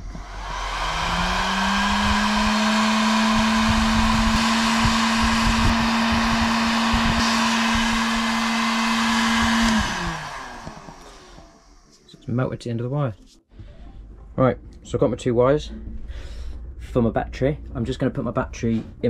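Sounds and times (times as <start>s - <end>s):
heat gun whining: 0.0s - 11.9s
rush of hot air: 0.0s - 11.9s.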